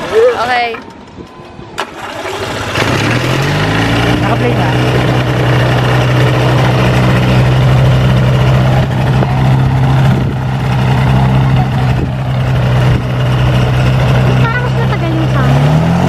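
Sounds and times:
light aircraft engine and propeller: 0:01.8 - 0:15.8.

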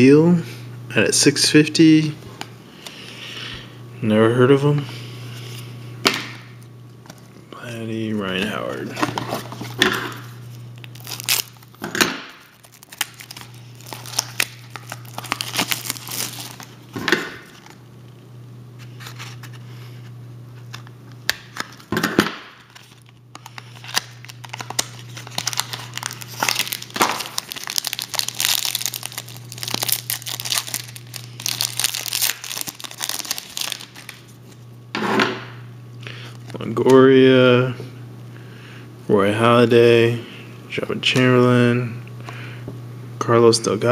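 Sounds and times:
foil wrapper crinkling and tearing: 0:08.2 - 0:17.8, 0:20.7 - 0:34.6.

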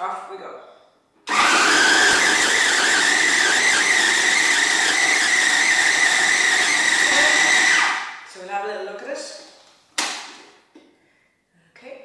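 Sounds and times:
food processor chopping nuts: 0:01.3 - 0:08.1.

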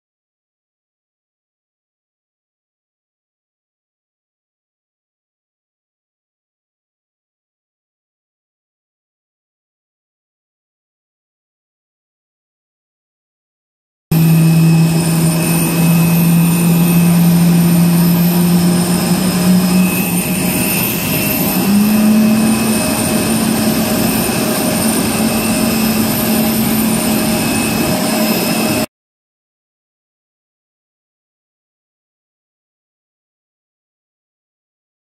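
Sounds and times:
jet engine whine: 0:14.1 - 0:28.9
rushing noise: 0:14.1 - 0:28.9.

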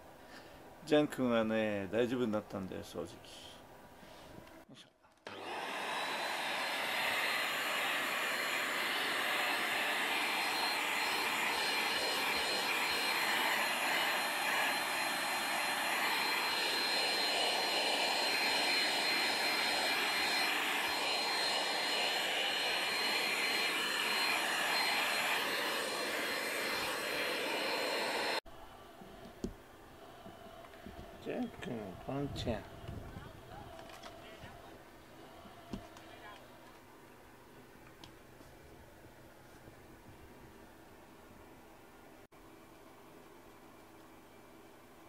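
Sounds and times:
vacuum cleaner running: 0:05.3 - 0:28.4.

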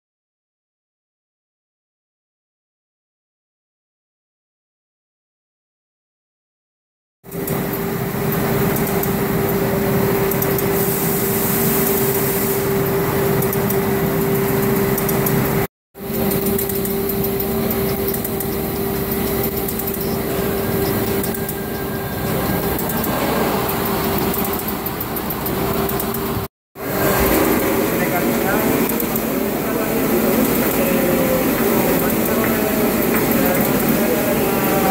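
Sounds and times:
machinery humming: 0:07.3 - 0:34.9.

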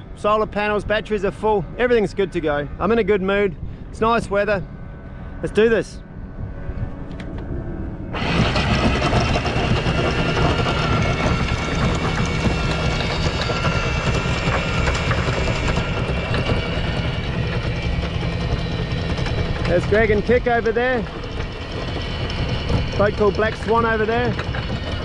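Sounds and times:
windlass motor running: 0:00.0 - 0:25.0
anchor chain rattling: 0:08.2 - 0:25.0.

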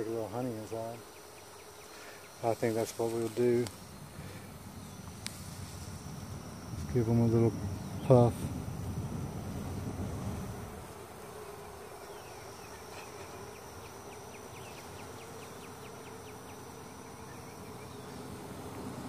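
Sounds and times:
bees buzzing: 0:00.0 - 0:19.0
faint ticks: 0:05.0 - 0:05.4.

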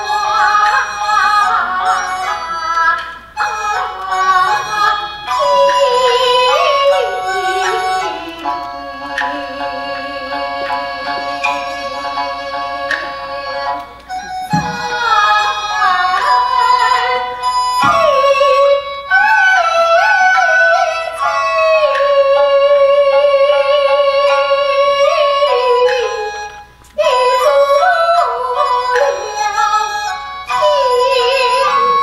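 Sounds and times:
woman singing opera: 0:00.0 - 0:26.4, 0:27.0 - 0:32.0
bamboo flute: 0:00.0 - 0:32.0.

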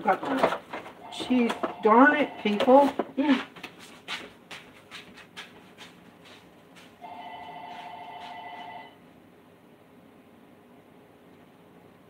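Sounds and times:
telephone ringing: 0:01.0 - 0:02.9, 0:07.0 - 0:09.0.

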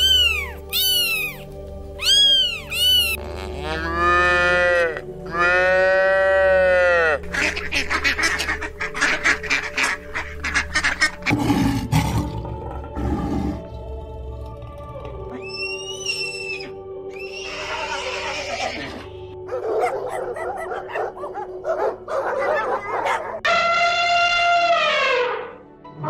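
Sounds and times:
cat meowing: 0:00.0 - 0:01.4, 0:02.0 - 0:03.2
background music: 0:00.0 - 0:26.0
cow mooing: 0:03.3 - 0:07.2.

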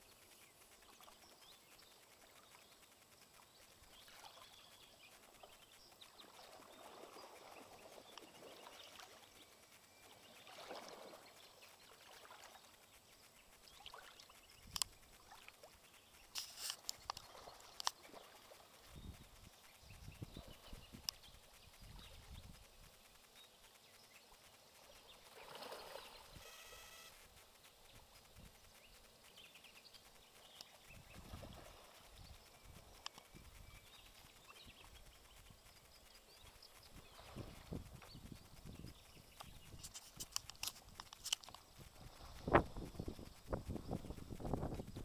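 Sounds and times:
faint water lapping: 0:00.0 - 0:23.3
soft low rumbles: 0:27.1 - 0:45.0.

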